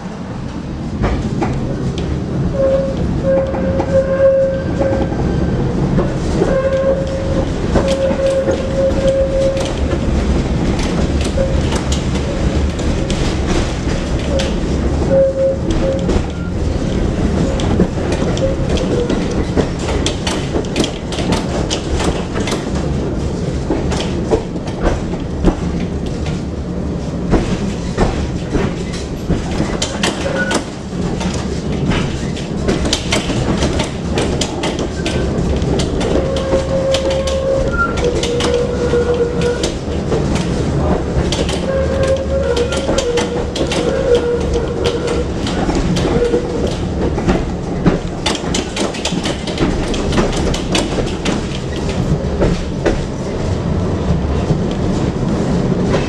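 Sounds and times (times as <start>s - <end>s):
tram rumbling on track: 0.0s - 56.0s
wheels clicking over rail joints: 5.9s - 26.4s, 27.2s - 53.4s.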